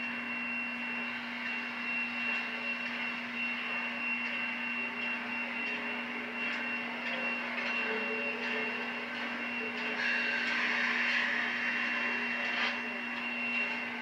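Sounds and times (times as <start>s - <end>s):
constant low hum: 0.0s - 14.0s
thin high whine: 0.0s - 14.0s
steam locomotive hissing: 5.4s - 14.0s.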